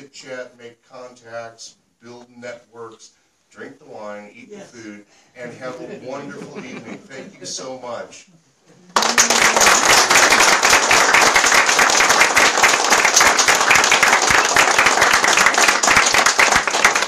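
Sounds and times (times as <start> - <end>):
people applauding: 8.9 - 17.0.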